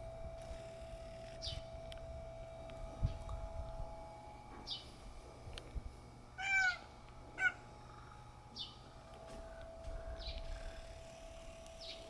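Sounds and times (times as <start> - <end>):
cat meowing: 6.4 - 6.8.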